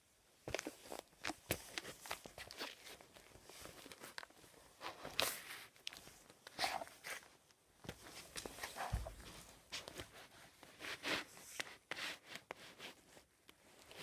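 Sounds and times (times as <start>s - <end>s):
sneakers tapping and scuffing on wood floor: 7.9s - 10.1s
sneaker scrape on floor: 8.5s - 9.8s.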